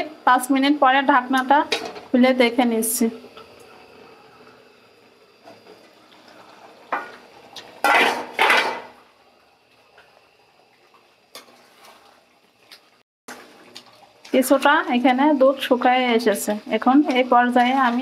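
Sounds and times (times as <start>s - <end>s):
metal pot lid clattering: 7.8s - 8.9s.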